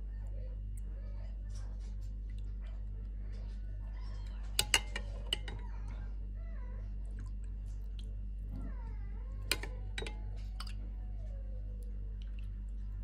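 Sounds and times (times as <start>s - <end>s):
low electrical hum: 0.0s - 13.0s
ladle clinking against glass bowl: 4.5s - 5.6s, 9.5s - 10.8s.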